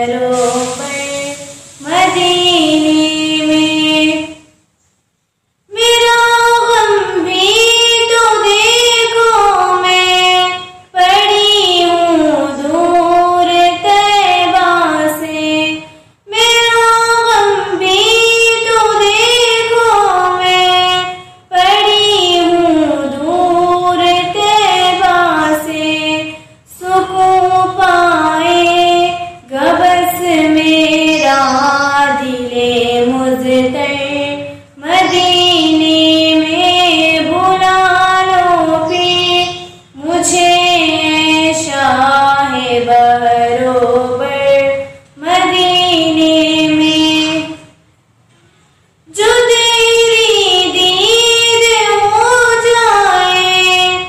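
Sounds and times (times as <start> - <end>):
girl singing unaccompanied: 0.0 - 4.6, 5.7 - 47.8, 49.1 - 54.0.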